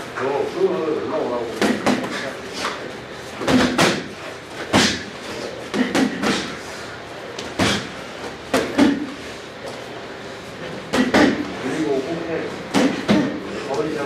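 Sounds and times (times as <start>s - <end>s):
boxing-glove punches landing: 12.7s - 13.3s.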